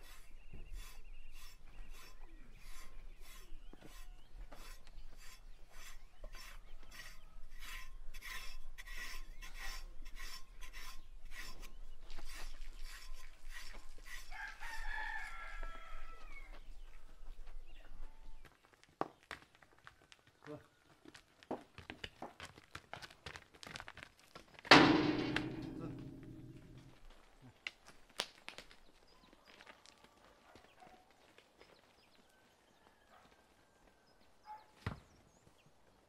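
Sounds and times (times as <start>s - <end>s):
grooming tool rasping on coat: 0.0s - 14.6s
rooster crowing: 14.3s - 16.6s.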